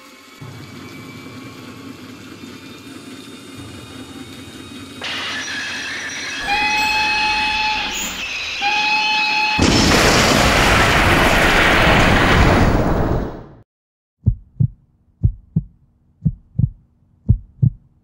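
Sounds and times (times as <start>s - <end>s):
steam locomotive running: 0.0s - 9.6s
steam whistle blasts: 0.4s - 9.7s
loud noise blast: 5.0s - 13.6s.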